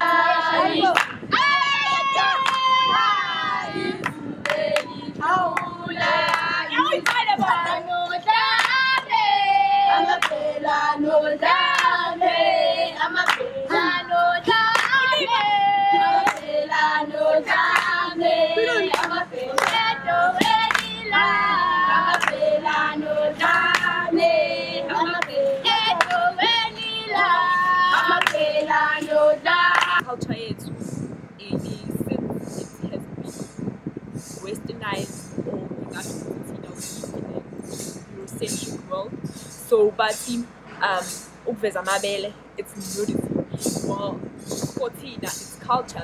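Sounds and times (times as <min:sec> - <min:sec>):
girls singing together: 0:00.0 - 0:30.1
hand-clapping: 0:00.9 - 0:01.2, 0:02.4 - 0:02.7, 0:04.0 - 0:04.9, 0:05.5 - 0:07.5, 0:08.6 - 0:09.1, 0:10.2 - 0:10.4, 0:11.7 - 0:12.0, 0:13.2 - 0:13.5, 0:14.7 - 0:15.2, 0:16.2 - 0:16.5, 0:17.5 - 0:18.0, 0:18.9 - 0:21.0, 0:22.1 - 0:22.4, 0:23.4 - 0:24.0, 0:25.2 - 0:26.3, 0:27.9 - 0:29.1, 0:29.7 - 0:30.0.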